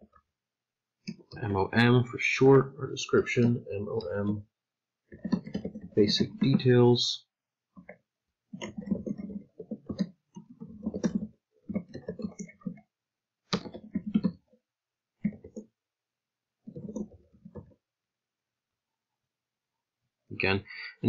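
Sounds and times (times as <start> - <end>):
computer keyboard typing: 5.1 - 6.8, 8.6 - 12.8, 13.5 - 14.5, 15.2 - 15.7, 16.7 - 17.8.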